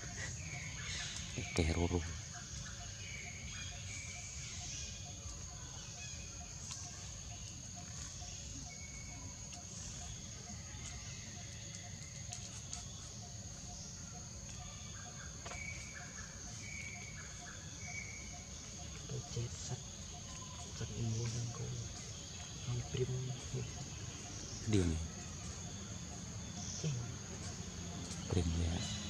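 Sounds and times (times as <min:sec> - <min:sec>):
high-pitched insect drone: 0:12.8 - 0:29.0.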